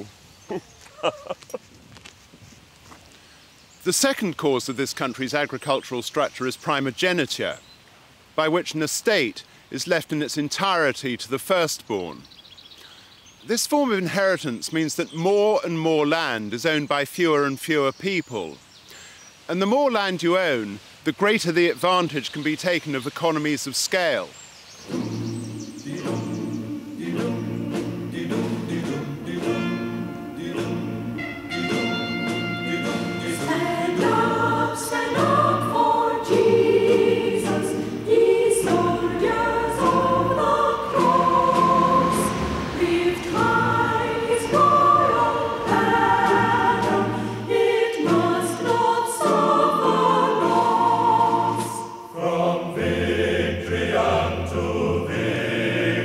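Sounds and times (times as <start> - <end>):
choir singing sacred music: 24.8 - 56.0.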